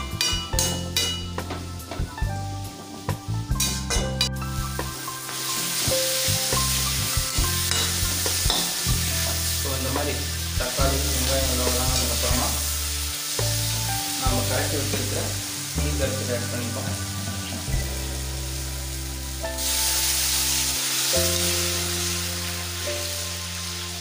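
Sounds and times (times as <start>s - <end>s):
background music with bass: 0.0s - 24.0s
vegetables sizzling in hot oil: 4.6s - 24.0s
metal ladle scraping pan: 7.6s - 9.4s.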